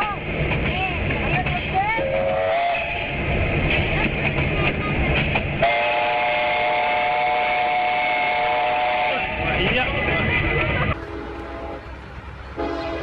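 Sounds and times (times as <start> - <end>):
rumble of rolling train: 0.0 - 13.0
steam locomotive whistle: 2.0 - 3.1, 5.6 - 9.4, 11.0 - 11.8, 12.6 - 13.0.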